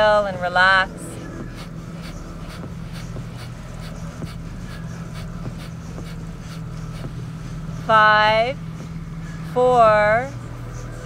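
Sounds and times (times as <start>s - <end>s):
steady low hum: 0.0s - 11.0s
forceful breaths out through nose: 1.1s - 7.9s.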